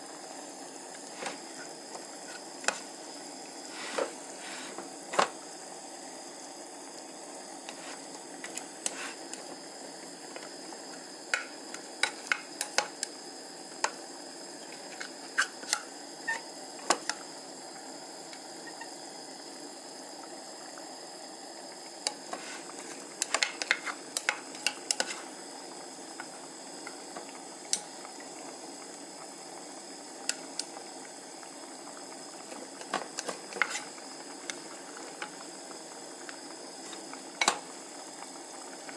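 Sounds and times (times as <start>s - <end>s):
broth simmering and bubbling: 0.0s - 38.9s
rice paddle clicking on pot: 11.3s - 13.1s.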